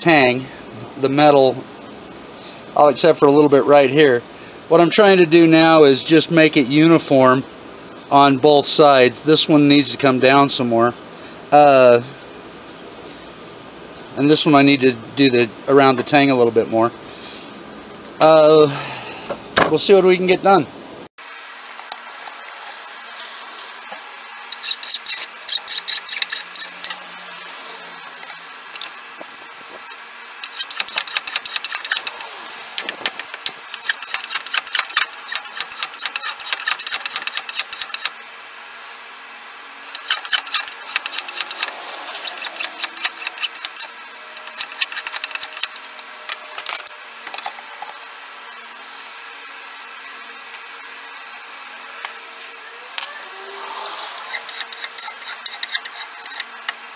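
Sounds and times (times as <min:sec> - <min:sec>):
hand file rasping on wood: 0:24.6 - 0:27.0, 0:30.4 - 0:32.3, 0:33.4 - 0:38.1, 0:40.0 - 0:45.8, 0:53.9 - 0:56.5.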